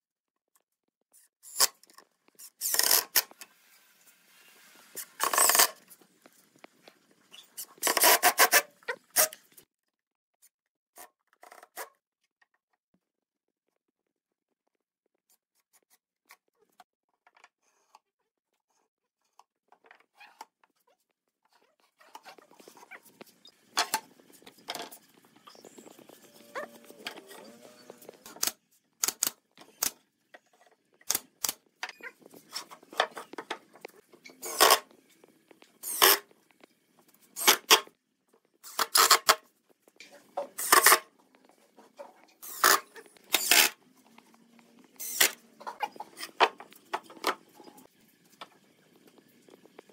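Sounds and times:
drill driving screws into wood: 0:02.5 - 0:03.4, 0:34.4 - 0:34.8, 0:35.8 - 0:36.2, 0:37.4 - 0:37.9, 0:42.4 - 0:43.8, 0:45.0 - 0:45.4.

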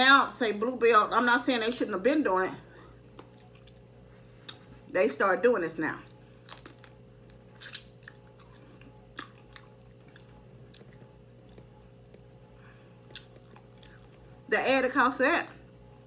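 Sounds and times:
faint steady hum: 0:00.0 - 0:16.0
chewing and mouth noises: 0:03.1 - 0:04.7, 0:06.1 - 0:12.3, 0:12.9 - 0:14.3
crisp clicks and smacks: 0:06.4 - 0:08.5.

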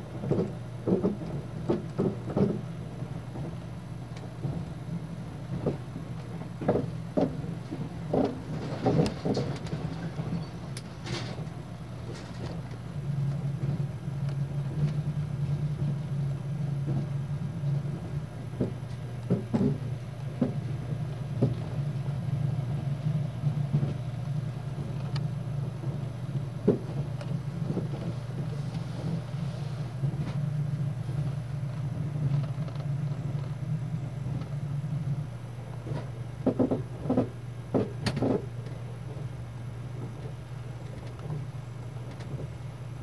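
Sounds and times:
train knocks: 0:00.0 - 0:39.3
train wheels rumbling on rails: 0:00.0 - 0:43.0.

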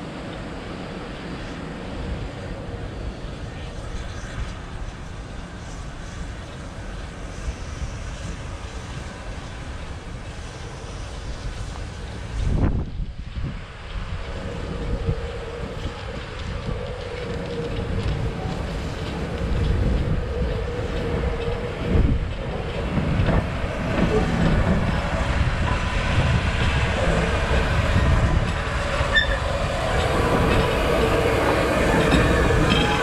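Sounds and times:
steam locomotive rolling slowly: 0:00.0 - 0:33.0
wheels clicking over rail joints: 0:13.8 - 0:33.0.

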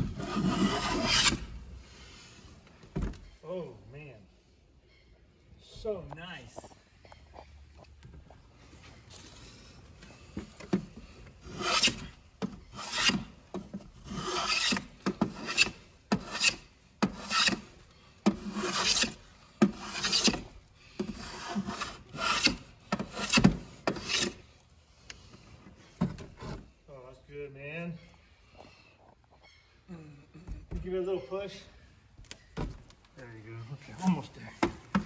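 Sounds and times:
hand plane shaving wood: 0:00.1 - 0:01.5, 0:11.4 - 0:12.1, 0:12.7 - 0:13.3, 0:14.0 - 0:17.7, 0:18.3 - 0:24.4.

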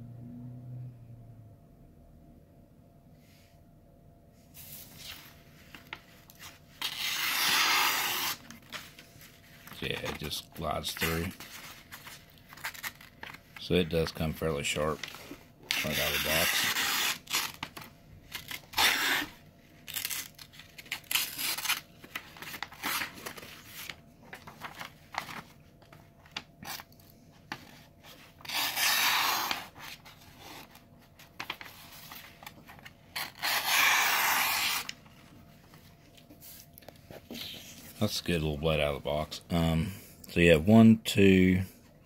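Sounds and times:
blade slicing paper: 0:06.8 - 0:08.5, 0:15.0 - 0:24.0, 0:28.4 - 0:30.8, 0:33.1 - 0:35.0.

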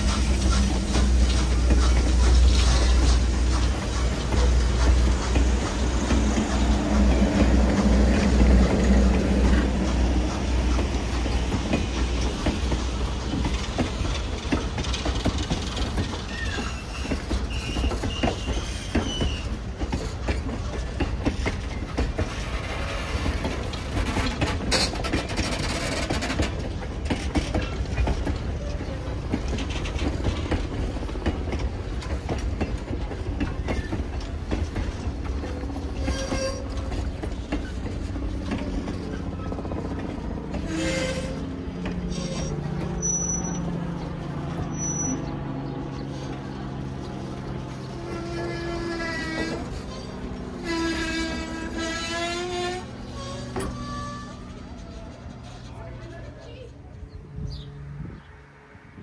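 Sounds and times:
train wheels clacking over rails: 0:00.0 - 0:57.7
faint wheel squeal: 0:16.2 - 0:19.6, 0:40.6 - 0:41.4, 0:42.1 - 0:43.7, 0:44.7 - 0:45.3, 0:48.1 - 0:55.7.

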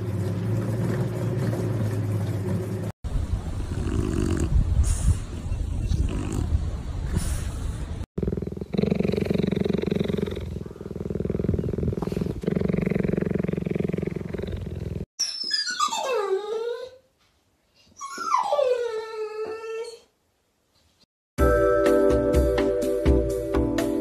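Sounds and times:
cheetah purring: 0:03.7 - 0:04.6, 0:08.2 - 0:15.1
dog whining: 0:15.2 - 0:17.1, 0:17.8 - 0:20.2.

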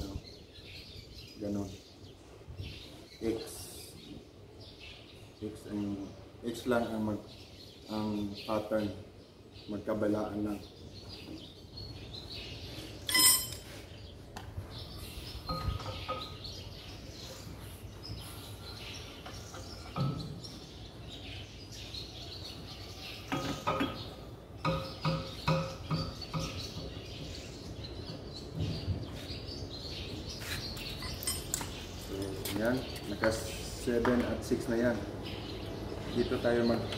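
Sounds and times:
metal tools clinking on engine: 0:13.0 - 0:13.7, 0:31.0 - 0:32.5.

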